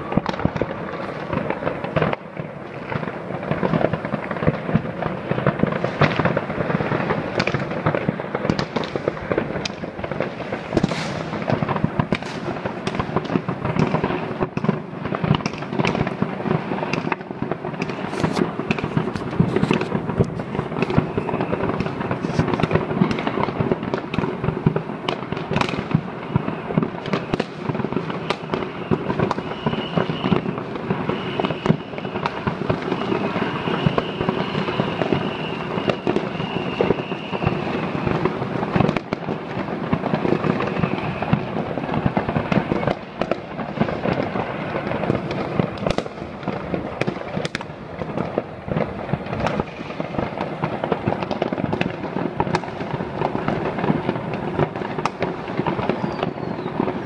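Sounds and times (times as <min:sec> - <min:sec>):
fireworks crackling bangs: 0:00.0 - 0:57.0
high whistling tone: 0:28.7 - 0:38.2, 0:40.6 - 0:41.5, 0:55.9 - 0:56.7.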